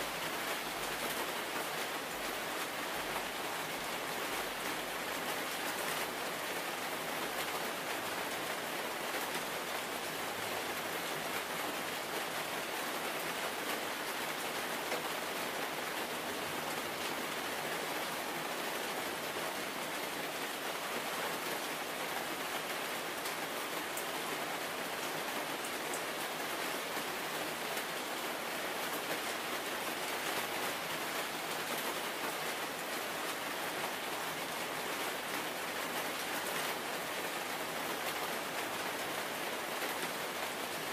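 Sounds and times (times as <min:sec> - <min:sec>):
steady rain: 0:00.0 - 0:40.9.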